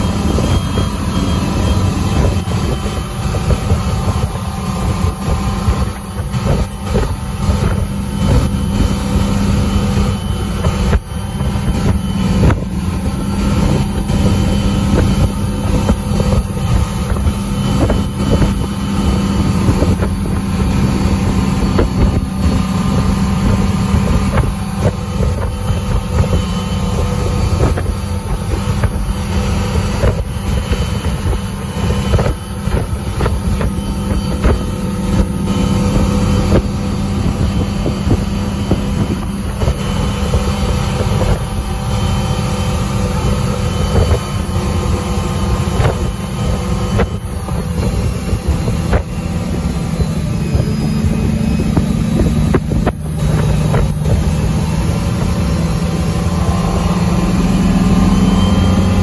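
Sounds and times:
boat engine running: 0.0 - 59.0
churning wake rushing: 0.0 - 59.0
wind buffeting microphone: 0.0 - 59.0.

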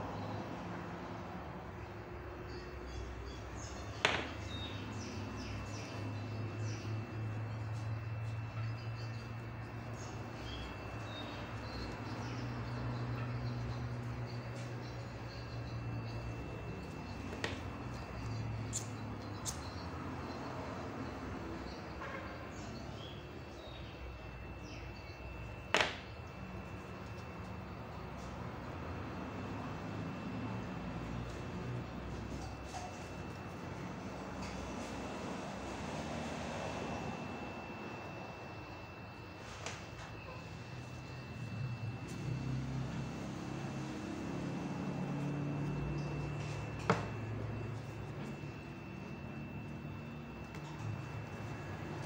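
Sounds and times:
low background hum: 0.0 - 52.0.

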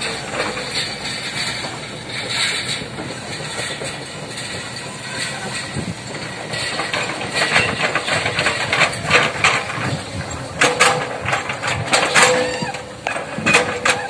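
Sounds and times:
excavator running: 0.0 - 14.0
clattering knocks and cracks: 6.6 - 14.0.

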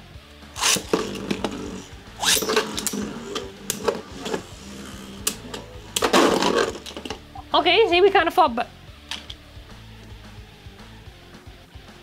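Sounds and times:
spinning tops clicking together: 0.6 - 7.2
spinning tops launching: 0.6 - 7.2
spinning tops whirring: 0.6 - 7.2.

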